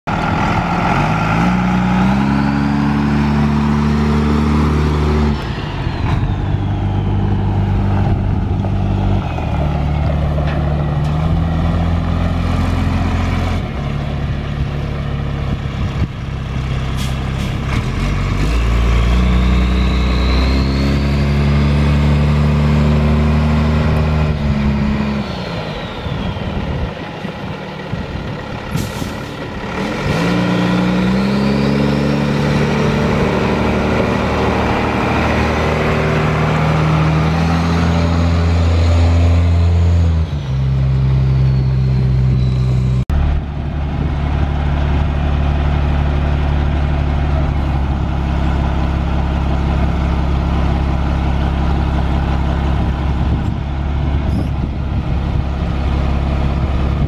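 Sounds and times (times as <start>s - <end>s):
diesel truck engine running: 0.1s - 57.0s
air brake hiss: 28.7s - 29.3s.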